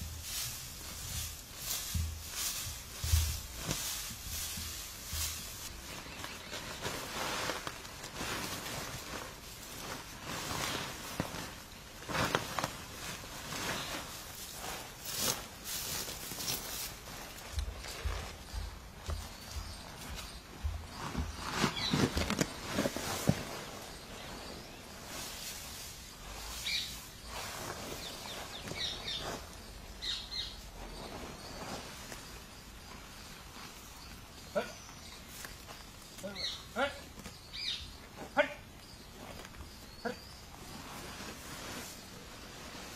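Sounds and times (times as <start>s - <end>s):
dry straw rustling: 0.0s - 42.9s
footsteps through loose straw: 0.0s - 42.9s.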